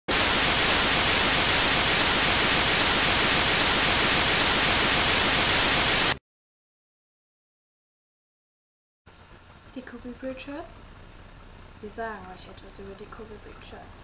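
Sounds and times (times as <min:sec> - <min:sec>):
television static hiss: 0:00.1 - 0:06.2.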